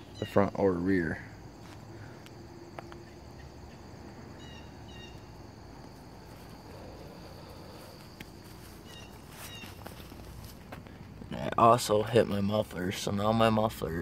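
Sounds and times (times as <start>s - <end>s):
bird chirps: 0.0s - 0.6s, 4.4s - 5.3s, 8.8s - 10.0s
high insect buzz: 0.0s - 11.5s.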